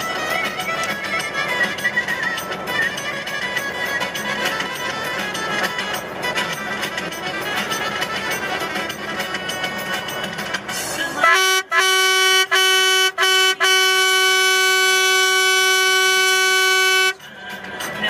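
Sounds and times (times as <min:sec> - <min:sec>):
vehicle horn honking: 0:11.2 - 0:17.2.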